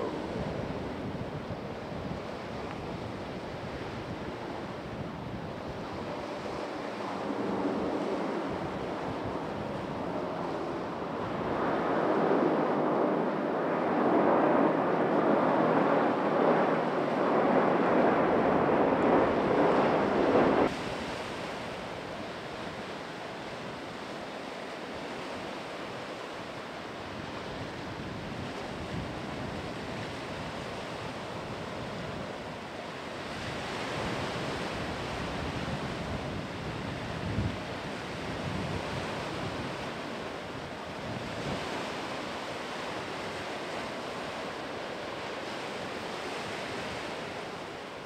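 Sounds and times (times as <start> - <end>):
jet engines roaring: 0.0 - 2.6, 5.6 - 20.9
wind on microphone: 0.0 - 26.1, 27.0 - 48.0.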